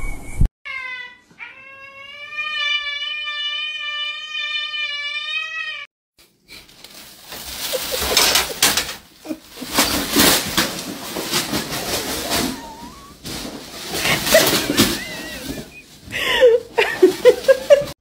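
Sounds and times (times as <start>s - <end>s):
cat yowling: 0.7s - 5.9s, 12.3s - 13.2s
plastic bag rustling: 6.2s - 18.0s.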